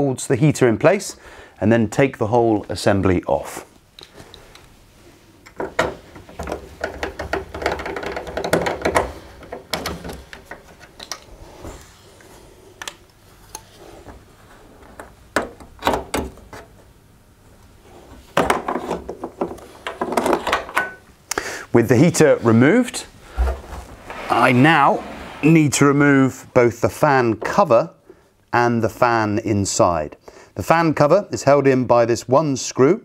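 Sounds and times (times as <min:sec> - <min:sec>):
clicks and clatter of dryer parts: 0:05.4 - 0:11.3.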